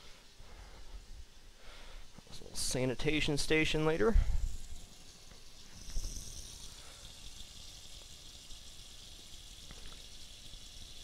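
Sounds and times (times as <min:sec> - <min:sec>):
tap water running into pot: 0:04.6 - 0:11.0.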